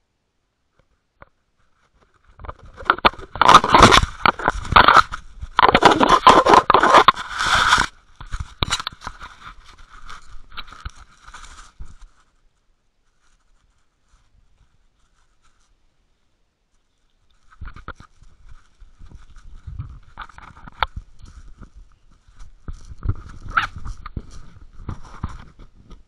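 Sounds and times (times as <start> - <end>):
camera housing scraping: 2.4 - 12.1.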